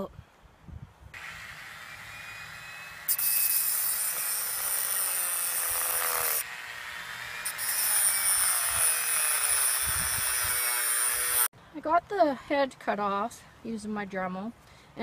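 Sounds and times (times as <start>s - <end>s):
rotary tool grinding metal: 1.2s - 11.5s.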